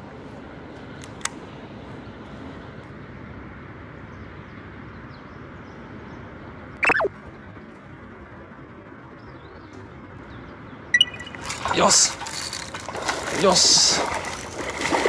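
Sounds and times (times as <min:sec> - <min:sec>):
outdoor background noise: 0:00.0 - 0:15.0
short sound dropping in pitch: 0:06.8 - 0:07.1.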